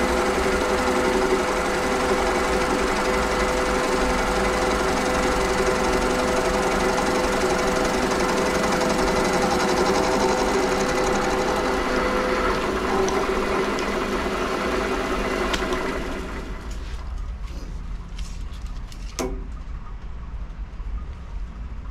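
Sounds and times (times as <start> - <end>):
lathe humming with whine: 0.0 - 17.1.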